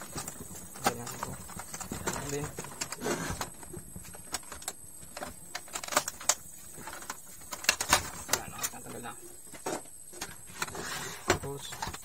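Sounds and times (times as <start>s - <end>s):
plastic printer casing snapping: 4.3s - 6.4s, 7.0s - 8.8s.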